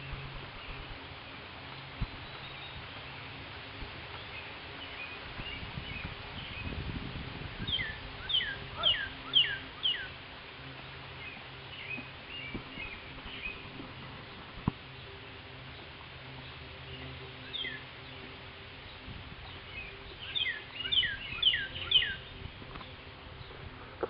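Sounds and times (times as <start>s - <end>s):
outdoor background noise: 0.0s - 24.0s
small bird chirping: 7.6s - 10.1s, 19.5s - 23.6s.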